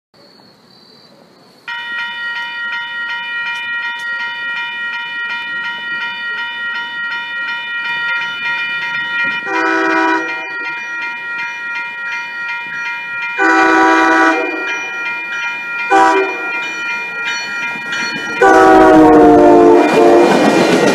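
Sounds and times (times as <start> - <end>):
crossing bell ringing: 1.7 - 20.9
train horn: 9.4 - 10.6, 13.4 - 14.9, 15.9 - 16.6, 18.4 - 20.5.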